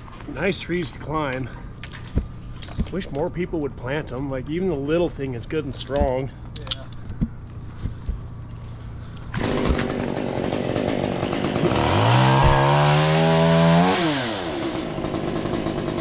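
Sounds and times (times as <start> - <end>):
chainsaw engine revving: 9.2 - 16.0.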